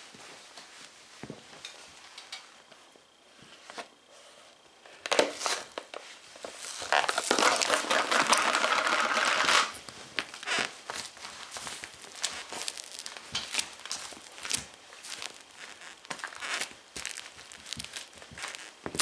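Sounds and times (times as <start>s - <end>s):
tub crunching and crackling: 5.1s - 19.0s.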